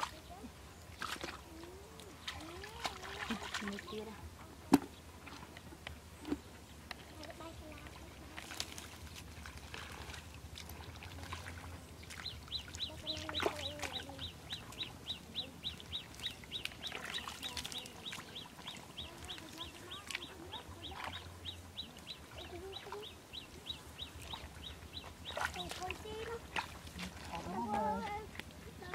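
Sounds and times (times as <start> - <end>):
hands splashing in muddy water: 8.3 - 14.2, 16.1 - 21.3.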